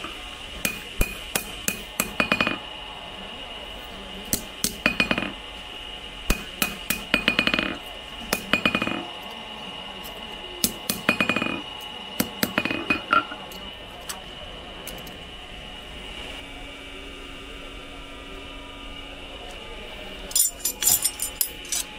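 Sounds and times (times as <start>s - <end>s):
hammer striking steel on anvil: 0.6s - 2.6s, 4.3s - 5.4s, 6.3s - 9.0s, 10.6s - 11.6s, 12.2s - 13.4s.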